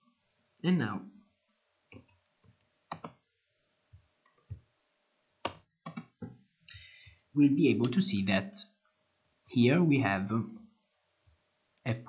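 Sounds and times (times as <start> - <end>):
computer mouse and keyboard clicks: 1.9 - 3.2, 5.4 - 6.4.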